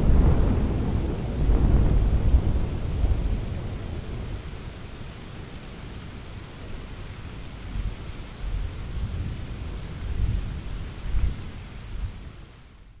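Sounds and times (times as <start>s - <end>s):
thunder rumbling: 0.0s - 4.6s.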